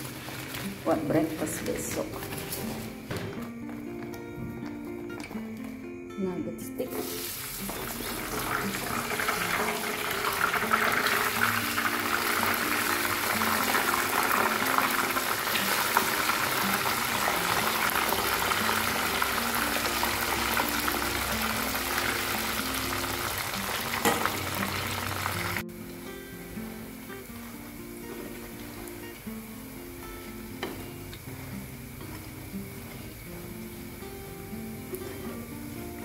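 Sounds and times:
food deep-frying in oil: 0.0s - 1.8s, 7.0s - 25.6s
background music: 0.0s - 36.0s.

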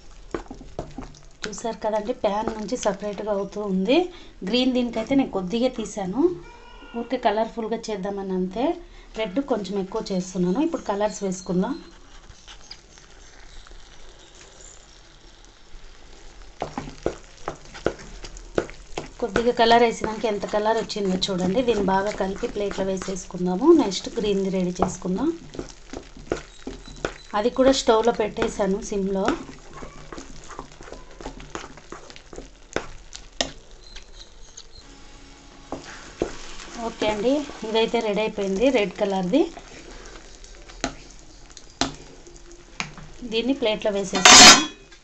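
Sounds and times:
food sizzling in a pan: 0.0s - 45.0s
spatula knocking and scraping pan: 0.3s - 3.1s, 16.6s - 33.6s, 35.7s - 38.7s, 44.1s - 44.8s.

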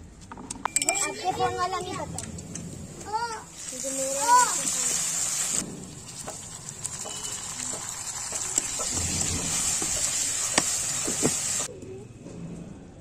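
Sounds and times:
vegetables sizzling in hot oil: 3.5s - 11.7s.

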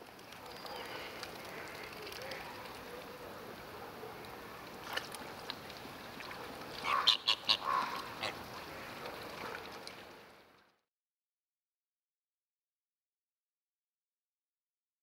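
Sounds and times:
outdoor background noise: 0.0s - 10.9s
waterfowl calling: 6.8s - 9.6s.

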